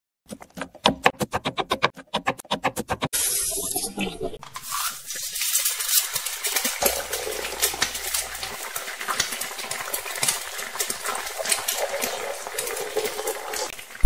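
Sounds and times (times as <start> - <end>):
onion frying in hot oil: 3.2 - 14.0.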